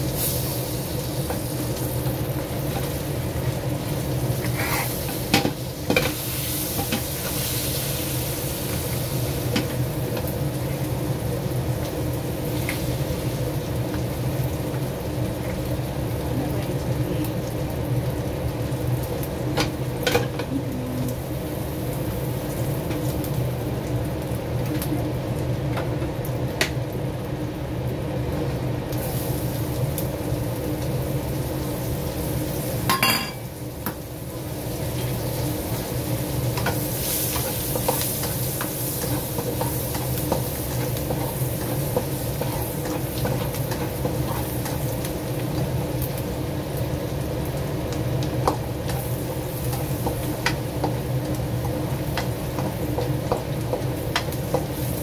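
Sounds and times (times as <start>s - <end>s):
garlic sizzling in hot oil: 0.0s - 55.0s.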